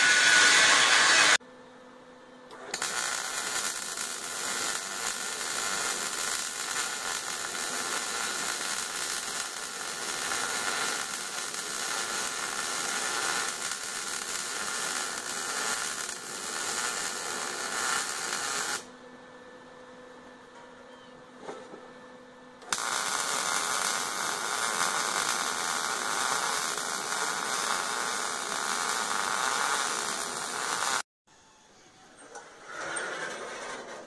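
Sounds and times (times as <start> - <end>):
arc welding crackle: 0.0 - 1.4, 2.5 - 18.9, 22.6 - 31.0.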